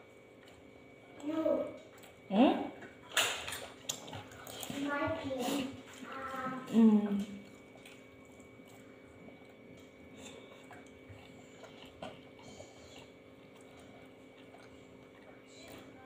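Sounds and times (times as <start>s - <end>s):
quiet chewing: 0.0s - 16.0s
steady faint hum: 0.0s - 16.0s.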